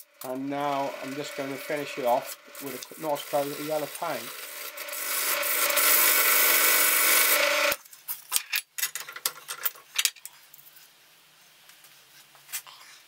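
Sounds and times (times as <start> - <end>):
drill press humming: 0.0 - 7.8
sandpaper rubbing on spinning wood: 0.3 - 7.7.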